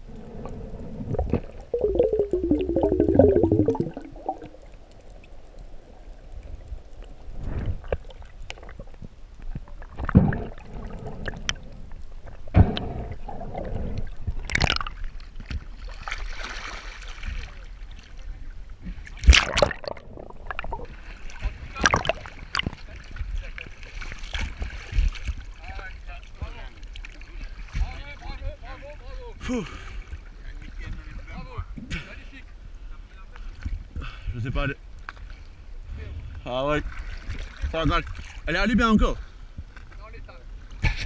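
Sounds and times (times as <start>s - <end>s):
underwater bubbling gurgles: 0.0s - 15.8s, 19.2s - 23.4s
faint hiss of water: 0.0s - 19.3s.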